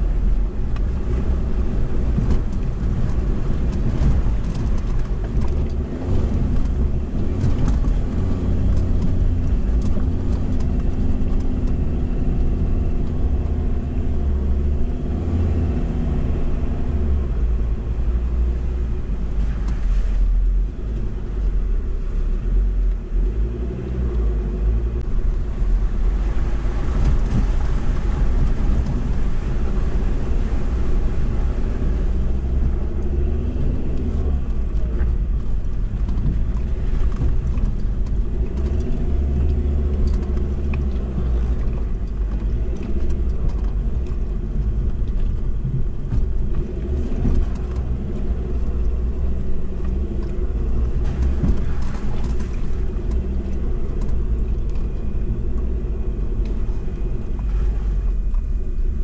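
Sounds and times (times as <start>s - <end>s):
tyres on dirt: 0.0s - 21.6s, 23.1s - 59.0s
vehicle engine rumble: 0.0s - 59.0s
knocks over bumps: 34.0s - 56.6s.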